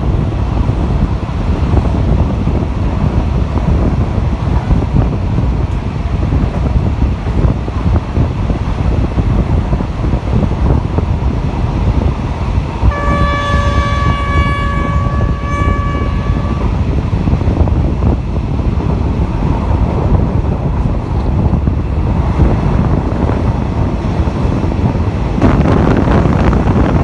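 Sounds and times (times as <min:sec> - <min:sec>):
train wheel rumble: 0:00.0 - 0:27.0
wind rushing through window: 0:00.0 - 0:27.0
train horn long blast: 0:12.8 - 0:17.0.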